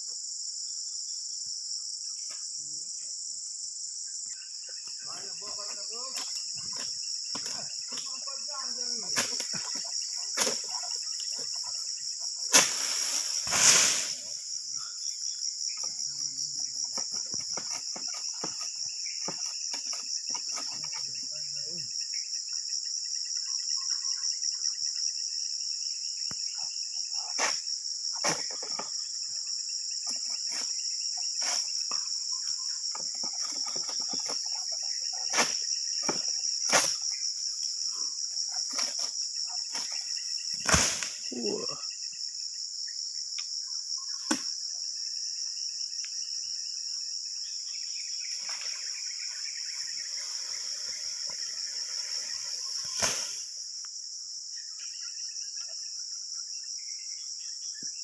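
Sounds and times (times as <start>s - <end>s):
insect chorus: 0.0s - 58.0s
sharp knocks of pole sickle: 12.5s - 12.9s, 35.3s - 37.0s, 40.6s - 41.2s
palm fronds rustling crash: 12.5s - 14.4s, 40.6s - 41.3s, 50.2s - 53.5s.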